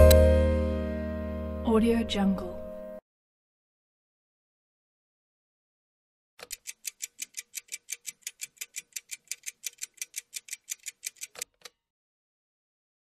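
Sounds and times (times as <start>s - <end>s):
stopwatch ticking: 6.4s - 11.5s.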